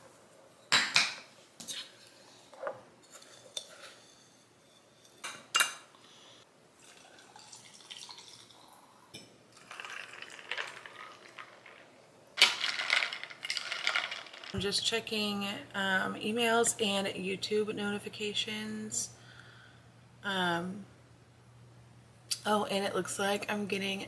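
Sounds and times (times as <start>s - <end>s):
liquid pouring into glass: 6.8s - 11.6s
glass straw stirring iced drink: 9.6s - 11.8s, 12.5s - 14.6s.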